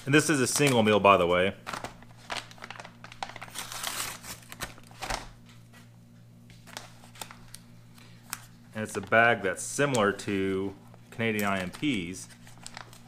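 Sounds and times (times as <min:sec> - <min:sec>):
foil paper pouch crinkling and tearing: 0:00.1 - 0:05.3, 0:11.2 - 0:13.0.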